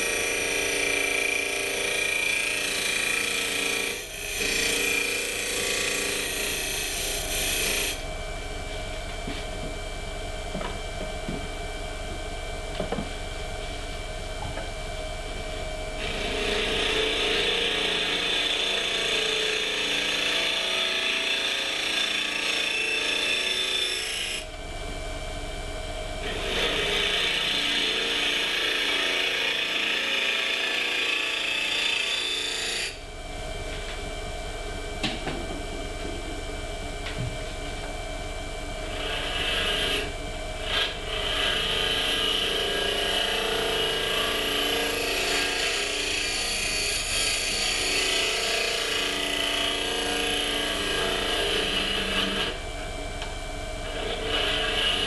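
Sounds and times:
turning tool cutting wood: 0.0s - 8.0s, 16.0s - 24.4s, 26.2s - 33.0s, 38.9s - 52.6s, 53.8s - 55.0s
wood lathe running: 0.0s - 8.0s, 16.0s - 24.5s, 26.2s - 33.0s, 38.9s - 52.6s, 53.8s - 55.0s.

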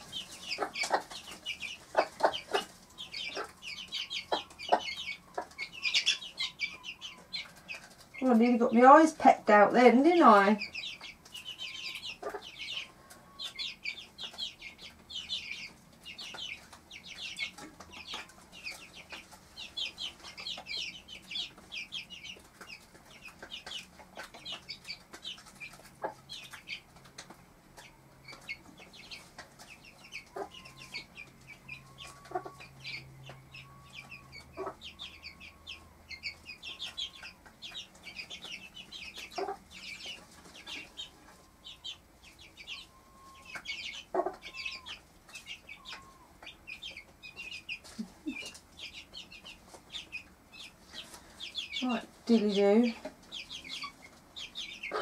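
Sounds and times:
chicks cheeping: 0.0s - 55.0s
hen clucking: 0.0s - 55.0s.

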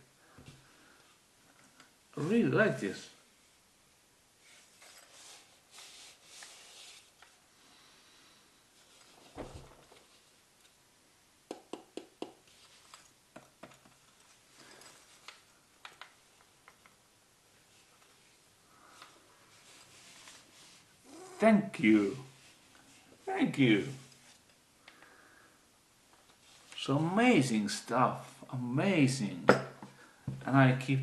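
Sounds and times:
faint rustling: 17.6s - 25.4s.

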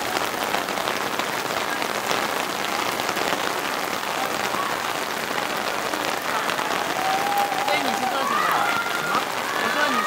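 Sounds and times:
rain falling on a surface: 0.0s - 10.0s.

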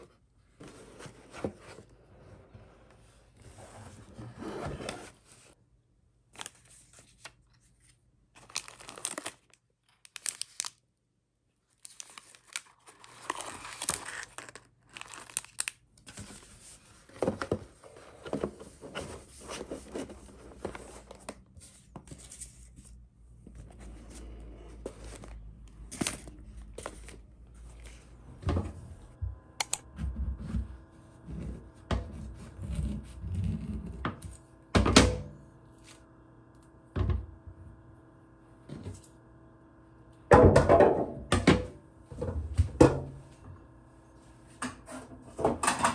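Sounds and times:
plastic wrapping crinkling: 8.3s - 10.8s, 11.7s - 16.4s.

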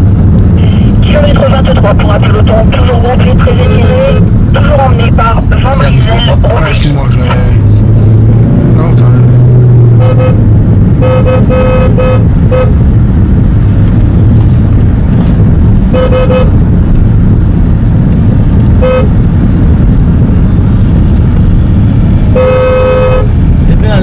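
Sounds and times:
car engine and road rumble: 0.0s - 24.0s
car horn beeps: 9.9s - 12.9s, 15.9s - 16.6s, 18.8s - 19.2s, 22.3s - 23.3s.

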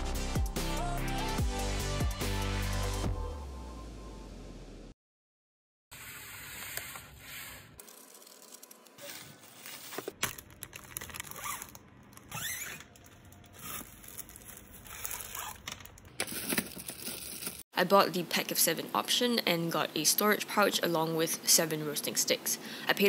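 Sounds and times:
plastic packaging crinkling: 7.8s - 17.6s.

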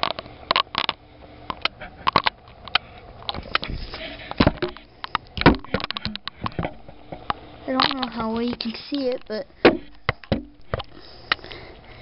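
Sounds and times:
heavy thumps: 3.4s - 8.5s, 9.2s - 11.0s.

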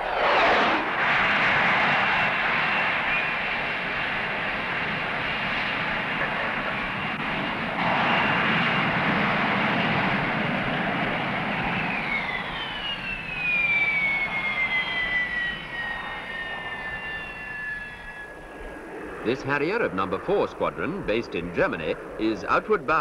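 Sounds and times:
high whine sliding down: 0.0s - 3.2s
jet engine roar: 0.0s - 23.0s.

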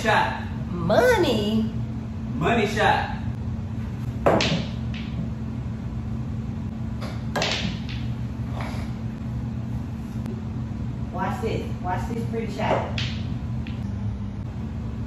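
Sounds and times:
steady low hum: 0.0s - 15.0s
pool balls clacking: 4.1s - 5.4s, 7.0s - 8.7s, 12.6s - 13.8s.

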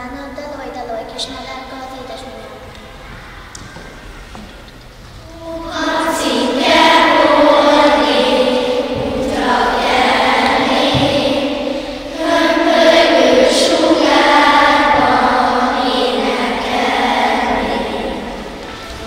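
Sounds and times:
children singing in chorus: 5.2s - 19.0s.

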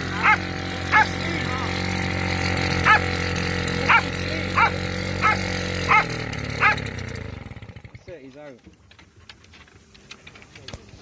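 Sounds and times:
outboard motor idling: 0.0s - 11.0s
dog barking: 0.2s - 1.2s, 2.8s - 3.0s, 3.9s - 6.8s.

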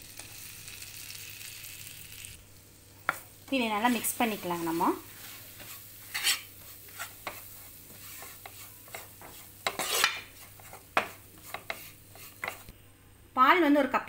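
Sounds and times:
low steady sizzle: 0.0s - 14.0s
metal spoon scraping pan: 3.9s - 12.7s.

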